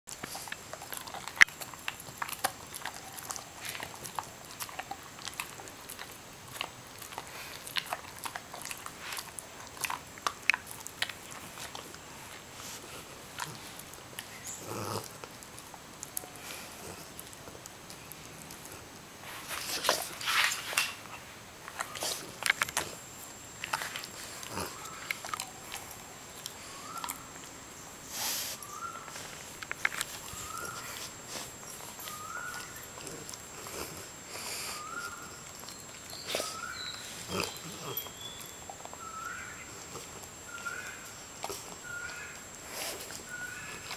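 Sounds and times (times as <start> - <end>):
dog chewing with jaw clicks: 0.1 - 27.7, 28.7 - 43.9
dog breathy hiss: 28.0 - 29.6, 42.6 - 43.3.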